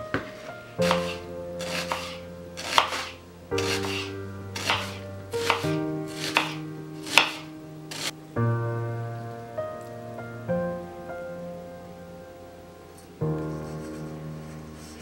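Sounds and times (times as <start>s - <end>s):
knife slicing onion on cutting board: 0.8s - 8.1s.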